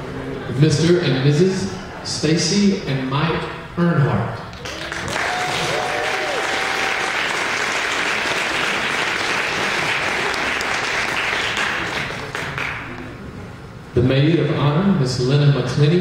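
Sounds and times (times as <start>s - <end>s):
crowd applauding: 4.6s - 13.1s.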